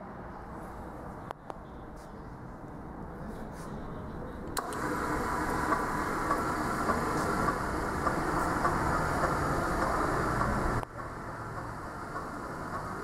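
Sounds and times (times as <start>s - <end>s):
motor and gear hum: 4.6s - 13.0s
machine ram knocking: 5.5s - 13.0s.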